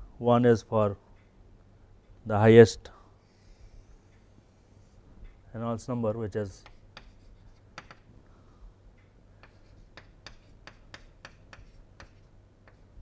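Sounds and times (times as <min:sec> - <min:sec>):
chalk tapping on blackboard: 0:06.6 - 0:08.1, 0:09.4 - 0:12.9.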